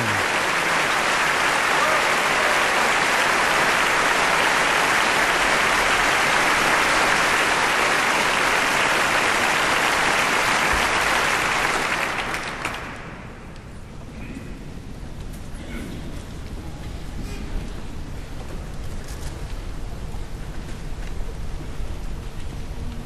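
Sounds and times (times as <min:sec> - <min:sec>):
audience applauding: 0:00.0 - 0:13.5.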